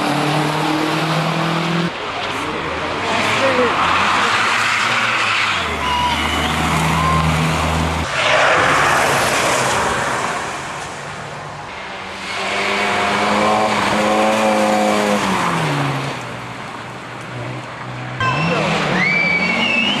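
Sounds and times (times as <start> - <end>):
rally car rushing past: 3.1 - 11.0.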